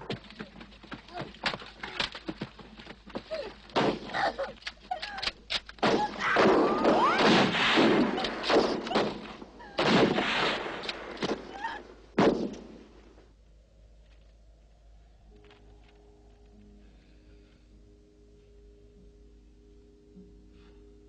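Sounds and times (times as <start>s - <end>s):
thuds and sharp knocks: 12.2s - 12.8s.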